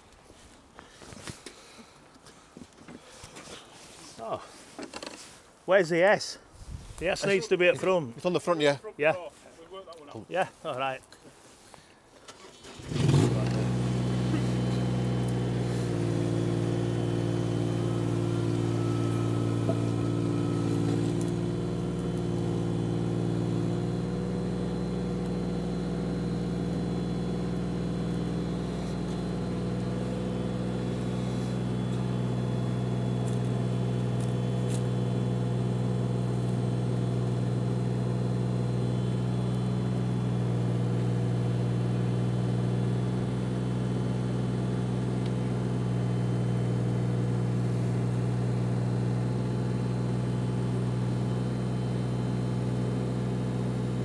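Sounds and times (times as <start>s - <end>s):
diesel engine running: 12.4s - 54.0s.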